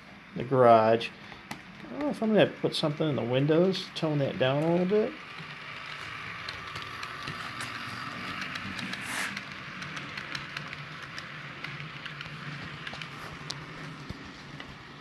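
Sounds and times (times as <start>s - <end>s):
model train motor hum: 0.0s - 15.0s
wheel and rail clicks: 1.3s - 15.0s.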